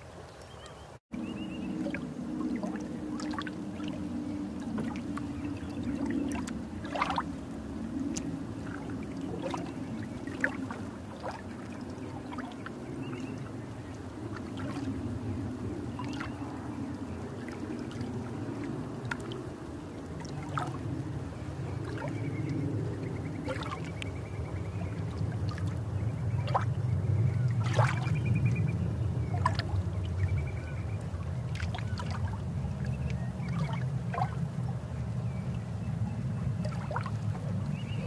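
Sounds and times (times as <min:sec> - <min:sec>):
underwater low rumble: 0:00.0 - 0:38.0
water bubbles gurgling: 0:01.3 - 0:15.0.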